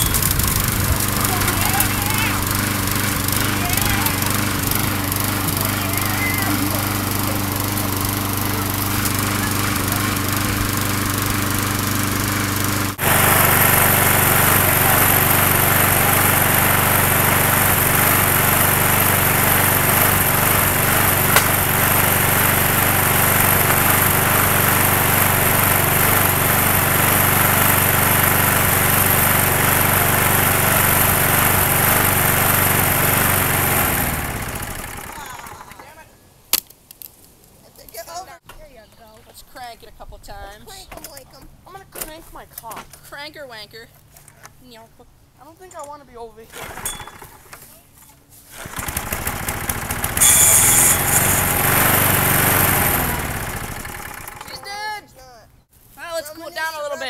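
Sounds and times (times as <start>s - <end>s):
lawn mower engine running: 0.0s - 35.8s, 46.5s - 54.8s.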